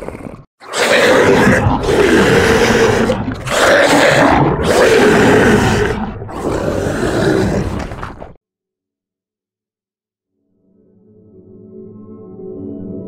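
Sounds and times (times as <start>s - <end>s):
creature roaring: 0.0s - 8.4s.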